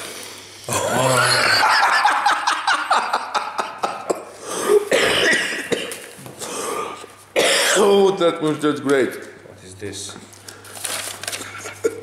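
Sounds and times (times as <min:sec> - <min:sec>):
cardboard packing rustling: 0:10.4 - 0:11.8.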